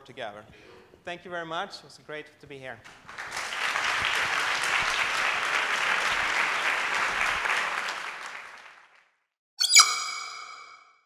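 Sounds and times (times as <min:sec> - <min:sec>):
audience applauding: 0:02.9 - 0:09.1
bright chime ringing: 0:09.6 - 0:11.0.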